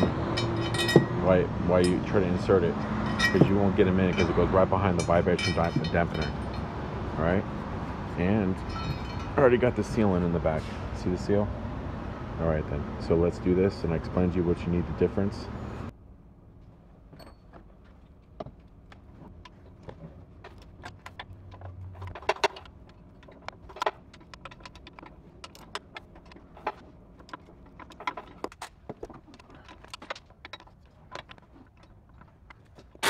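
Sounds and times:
metallic clinks of bolts: 0.0s - 1.2s, 1.8s - 6.7s, 8.6s - 9.6s, 17.1s - 17.6s.

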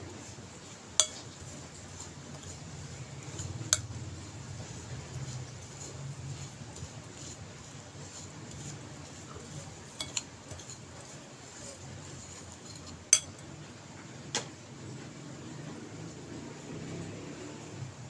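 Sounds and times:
spoon stirring dry oats: 0.0s - 13.6s
spoon clinking ceramic bowl: 1.0s - 1.3s, 10.0s - 10.7s, 13.1s - 13.4s.

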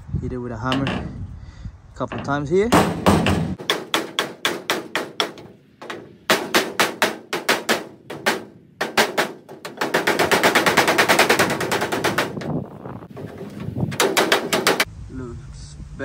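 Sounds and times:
hammer striking sheet steel: 2.1s - 14.9s.

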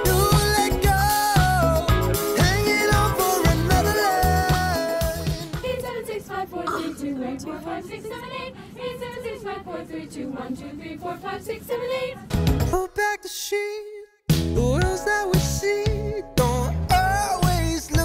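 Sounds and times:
pop music track: 0.0s - 7.0s, 12.3s - 18.0s
women singing a cappella: 1.6s - 12.3s.

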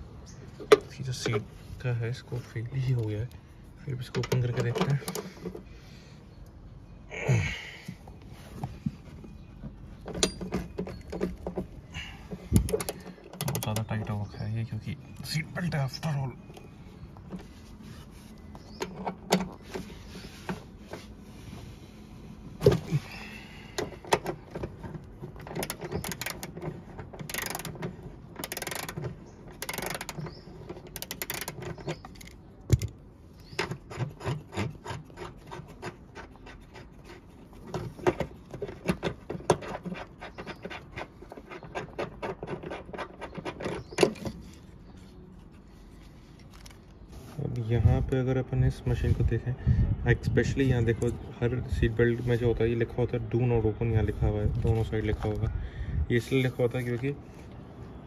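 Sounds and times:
metal and plastic scraping: 3.9s - 5.8s, 8.5s - 14.5s, 15.1s - 21.8s, 22.5s - 48.2s
ratchet wrench clicking: 25.6s - 26.5s, 27.3s - 27.8s, 28.4s - 29.0s, 29.6s - 30.2s, 31.0s - 31.6s.

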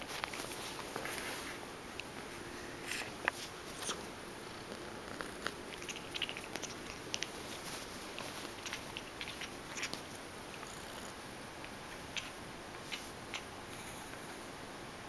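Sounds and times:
kitten purring: 2.8s - 14.5s.

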